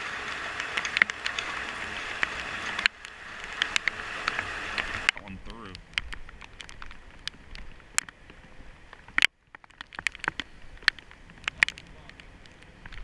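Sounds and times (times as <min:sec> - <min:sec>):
raindrops ticking on camera housing: 0:00.0 - 0:13.0.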